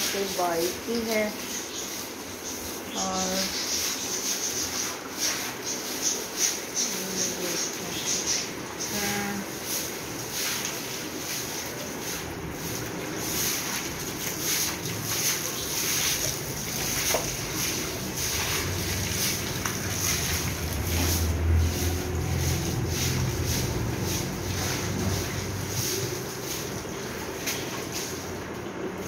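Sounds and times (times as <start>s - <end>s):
broom scrubbing wet tiled floor: 0.0s - 29.0s
water sloshing: 8.6s - 29.0s
low rumble: 17.9s - 25.8s.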